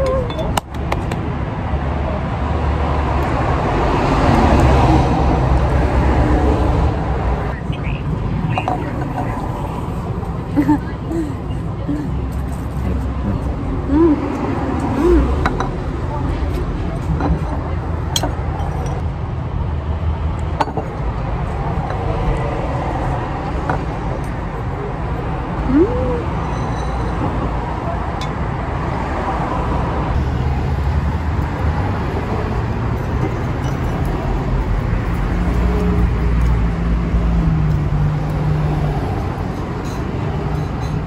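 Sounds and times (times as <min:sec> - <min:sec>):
road traffic rumble: 0:00.0 - 0:41.0
vehicle passing: 0:01.2 - 0:18.6.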